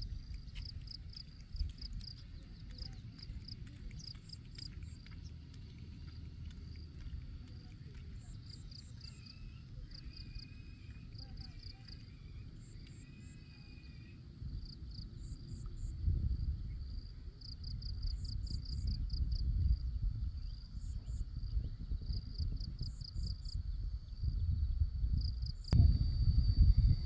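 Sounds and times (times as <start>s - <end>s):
insects chirping: 0.0s - 16.1s, 16.8s - 27.0s
low rumbling noise: 23.6s - 27.0s.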